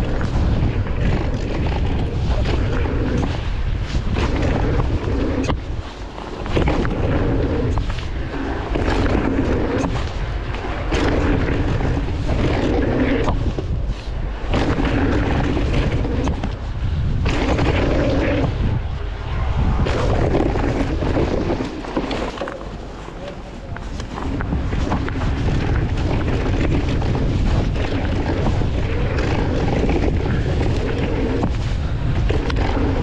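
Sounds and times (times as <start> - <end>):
bike knocking and rattling: 0.0 - 18.9, 19.8 - 33.0
tyre rumble on dirt: 0.0 - 33.0
wind buffeting: 0.0 - 33.0.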